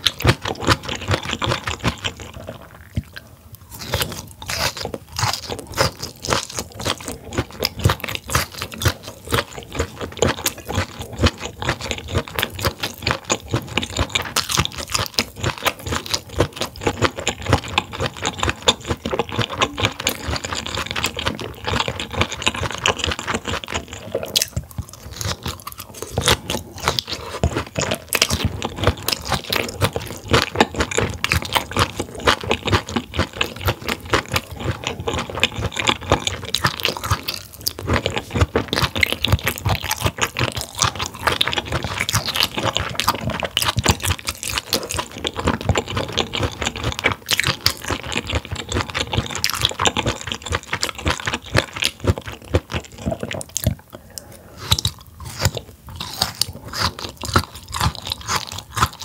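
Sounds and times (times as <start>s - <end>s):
chewing and crunching: 0.0s - 59.0s.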